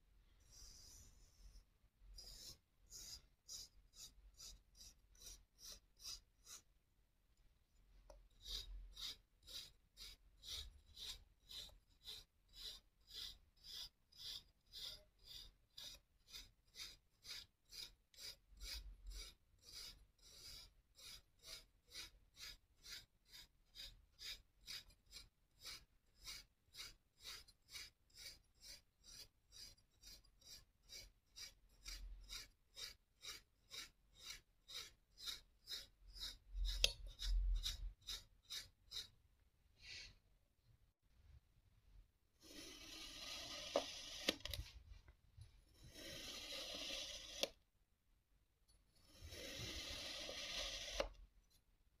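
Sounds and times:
fork scraping through sand: 0:00.4 - 0:06.7, 0:08.4 - 0:39.1, 0:49.0 - 0:51.1.

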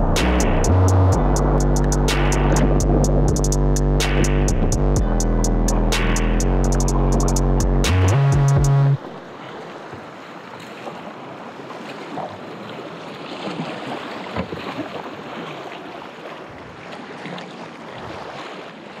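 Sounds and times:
paddle splashing in water: 0:09.0 - 0:19.0.

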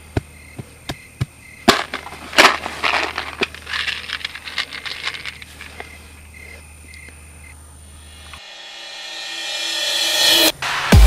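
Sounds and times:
plastic crackling and rustling: 0:01.7 - 0:06.0.

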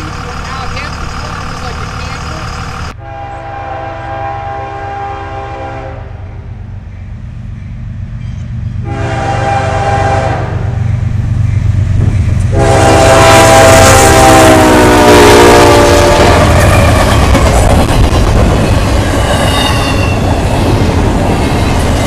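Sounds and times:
train wheels on rails: 0:00.0 - 0:03.0, 0:06.7 - 0:22.0
diesel engines rumbling: 0:00.0 - 0:22.0
train horn blasts: 0:03.0 - 0:06.2, 0:08.8 - 0:10.8, 0:12.5 - 0:17.0.

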